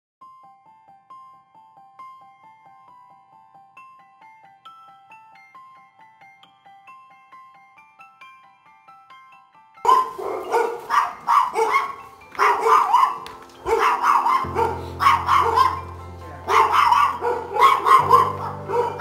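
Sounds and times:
background music: 0:00.2 - 0:19.0
dog barking: 0:09.8 - 0:19.0.

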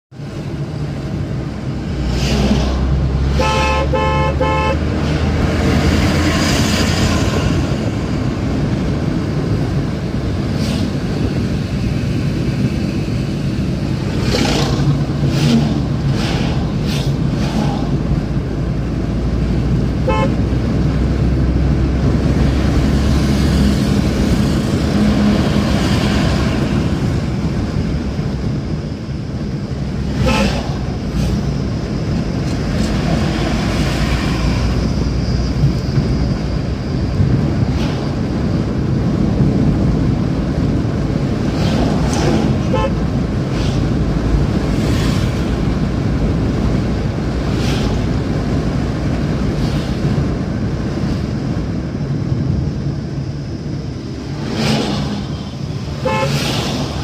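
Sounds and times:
car engine hum and road noise: 0:00.1 - 0:57.0
car horn short beeps: 0:20.1 - 0:20.4, 0:42.7 - 0:43.0, 0:56.0 - 0:56.4.

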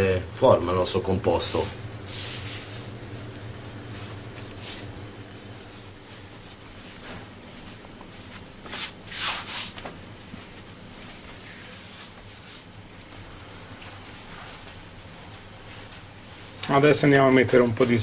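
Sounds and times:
low steady hum: 0:00.0 - 0:08.8
hands rubbing dough on countertop: 0:01.3 - 0:16.6.

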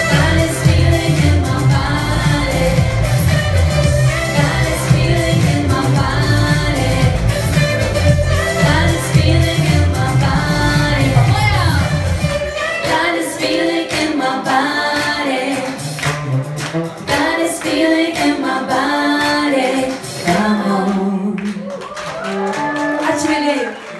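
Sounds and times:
heavy bass: 0:00.0 - 0:12.6
woman singing: 0:00.0 - 0:15.8, 0:17.1 - 0:23.8
musical accompaniment: 0:00.0 - 0:21.6.

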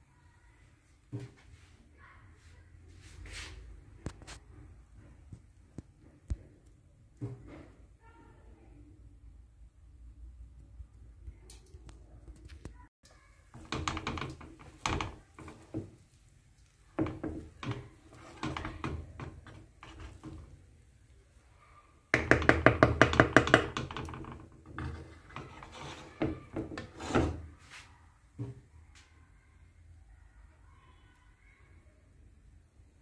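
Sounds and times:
wooden spatula scraping pan: 0:13.5 - 0:20.7, 0:22.2 - 0:28.6.

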